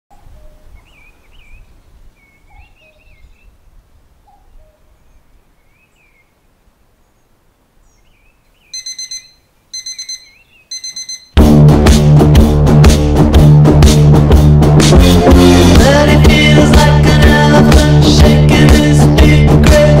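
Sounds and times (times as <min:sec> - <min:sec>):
birds chirping faintly: 0:00.1 - 0:11.4
alarm clock beeping: 0:08.8 - 0:11.4.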